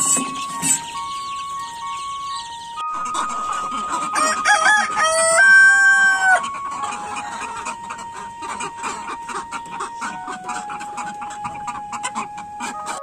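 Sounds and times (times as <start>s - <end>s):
chickens clucking: 0.0s - 13.0s
soft flute melody: 0.0s - 13.0s
rooster crowing: 3.1s - 9.0s.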